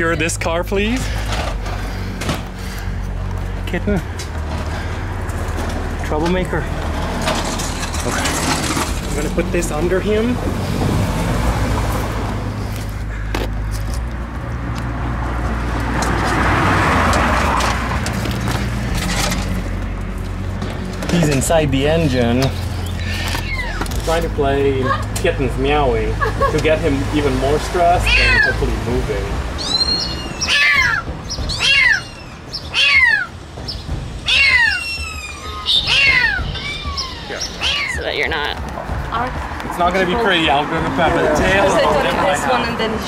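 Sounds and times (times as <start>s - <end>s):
vehicle engine humming: 0.0s - 43.0s
kitten meowing: 23.0s - 23.9s, 28.0s - 28.6s, 29.6s - 33.3s, 34.2s - 38.2s.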